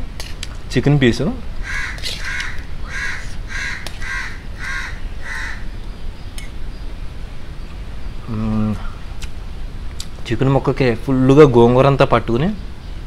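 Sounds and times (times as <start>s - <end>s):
crow cawing: 1.6s - 5.8s.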